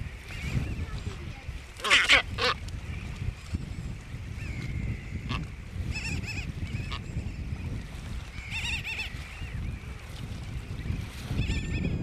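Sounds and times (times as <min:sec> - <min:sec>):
wind rumble on microphone: 0:00.0 - 0:12.0
seabird squawks: 0:01.8 - 0:02.6, 0:04.4 - 0:07.3, 0:08.3 - 0:09.6, 0:11.3 - 0:12.0.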